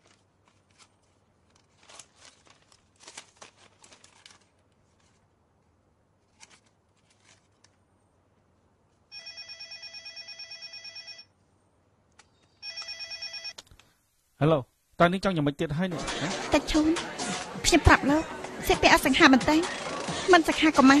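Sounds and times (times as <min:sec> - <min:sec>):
paper rustling and scratching: 0:00.0 - 0:05.3, 0:06.2 - 0:07.8
telephone ringing: 0:09.1 - 0:11.3, 0:12.6 - 0:13.6.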